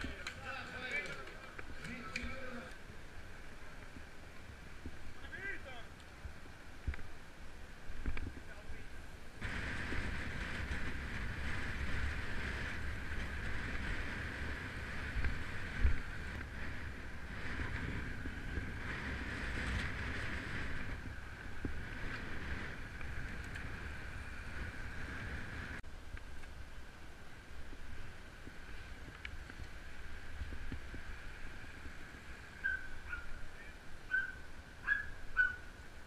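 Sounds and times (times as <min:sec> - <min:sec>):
road noise: 0:00.0 - 0:36.0
wind buffeting microphone: 0:09.4 - 0:25.8, 0:27.5 - 0:36.0.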